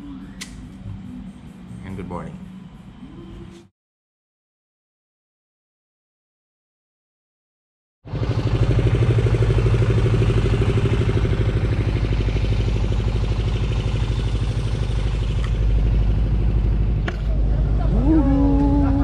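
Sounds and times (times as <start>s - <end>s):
boat engine running: 8.1s - 19.0s.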